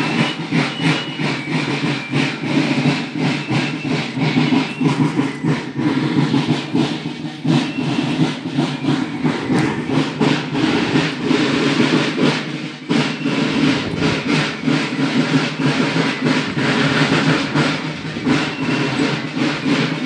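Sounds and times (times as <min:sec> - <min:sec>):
marching drums beating: 0:00.0 - 0:20.0.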